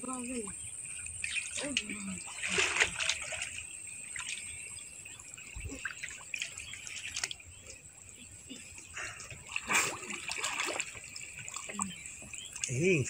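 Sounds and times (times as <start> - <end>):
muddy water splashing and trickling: 0.0 - 13.0
loud splash of mud lifted: 9.5 - 10.9.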